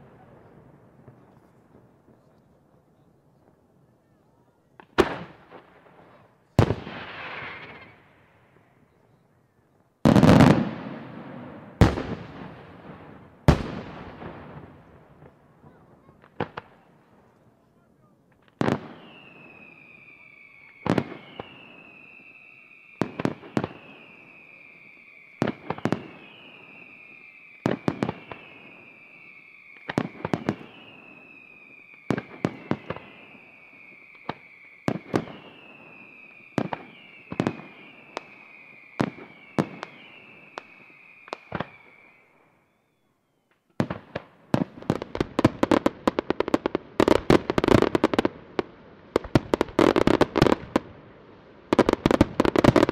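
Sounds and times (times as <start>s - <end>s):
firework bangs: 4.8s - 8.7s, 10.0s - 17.3s, 18.3s - 42.5s, 43.8s - 51.0s, 51.7s - 52.9s
firework crackling: 4.8s - 8.8s, 18.3s - 42.5s, 43.8s - 52.9s
firework whistle falling: 7.0s - 8.1s, 18.7s - 43.6s.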